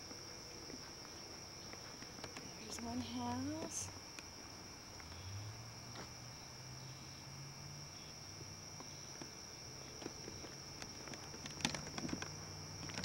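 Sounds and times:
faint footsteps on a path: 0.0 - 6.5, 8.0 - 13.0
crickets trilling: 0.0 - 13.0.

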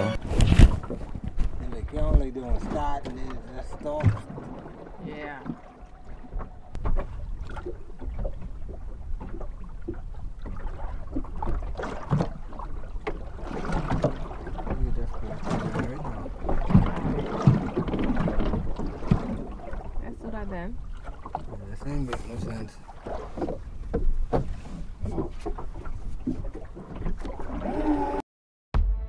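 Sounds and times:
wind on microphone: 0.0 - 11.7
water thumping on hull: 0.0 - 27.8
water splashing against boat hull: 0.0 - 28.2.

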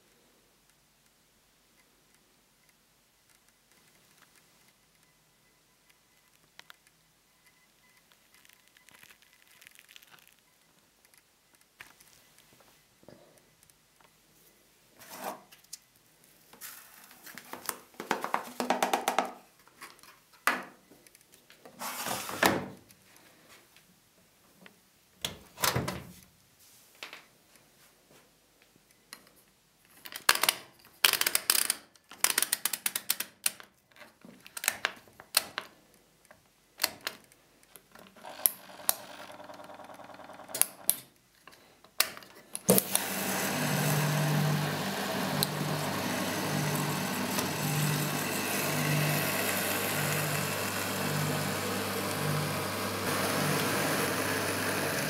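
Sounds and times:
washing machine humming: 42.8 - 55.0.

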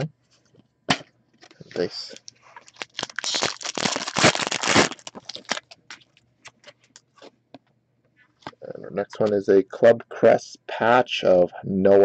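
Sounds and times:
wrapper crinkling and tearing: 2.0 - 6.2.

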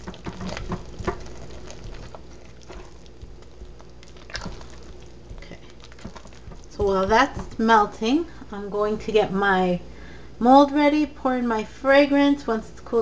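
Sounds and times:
spatula stirring soap paste: 0.0 - 7.9.

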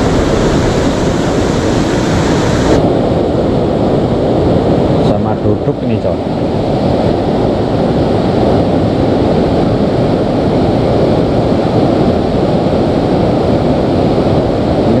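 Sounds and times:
water rushing over rocks: 0.0 - 2.8.

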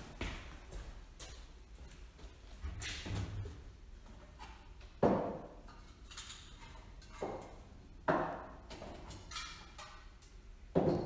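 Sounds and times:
sharp knocks echoing in shed: 4.4 - 5.8, 7.1 - 9.9, 10.7 - 11.0.

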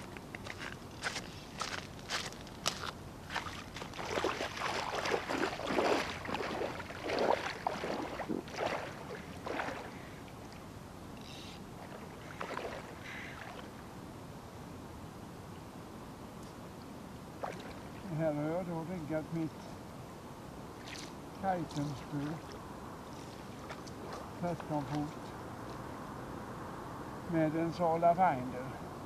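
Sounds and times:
splashing footsteps in water: 0.5 - 10.0, 11.8 - 13.7, 17.4 - 17.9, 20.8 - 22.6, 23.2 - 25.8.

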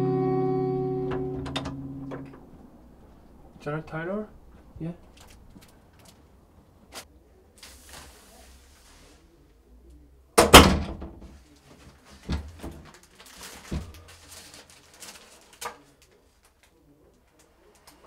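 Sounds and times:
door shutting with heavy thud: 1.1 - 2.7, 10.4 - 11.3
plastic wrapping crinkling: 11.6 - 18.0.

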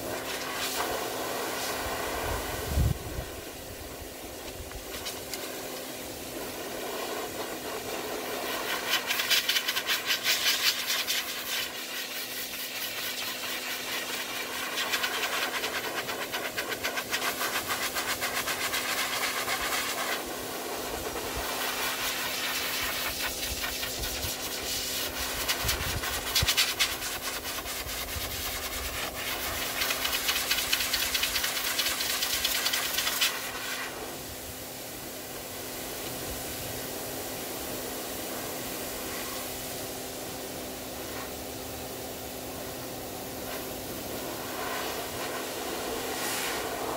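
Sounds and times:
pet dryer blowing air: 0.0 - 46.9.

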